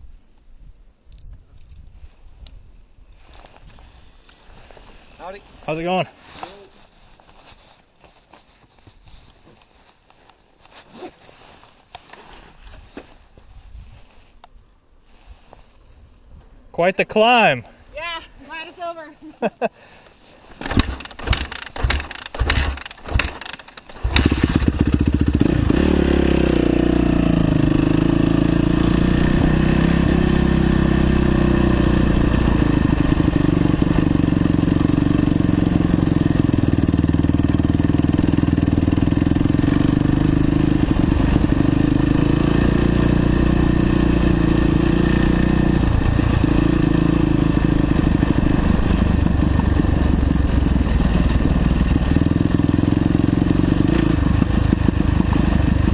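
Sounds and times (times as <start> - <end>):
dirt bike engine: 20.0 - 55.9.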